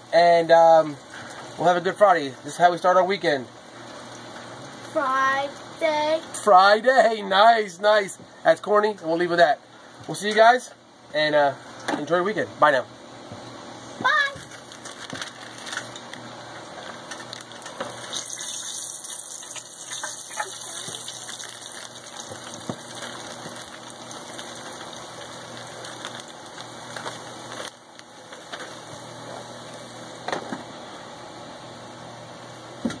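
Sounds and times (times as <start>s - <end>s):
hot oil sizzling and bubbling: 0.0s - 7.2s, 15.5s - 30.3s.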